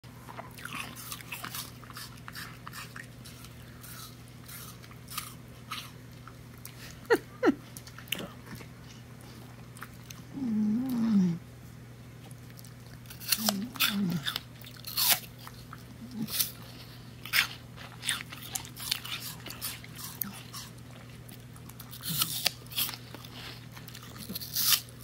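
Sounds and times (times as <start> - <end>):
dog crunching apple: 0.1 - 6.9, 12.2 - 25.0
low wavering vocal hum: 10.3 - 11.4, 13.4 - 14.3.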